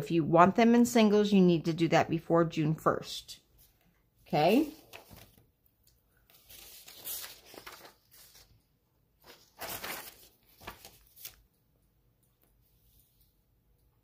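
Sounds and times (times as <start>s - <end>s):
paper rustling: 3.6s - 11.6s.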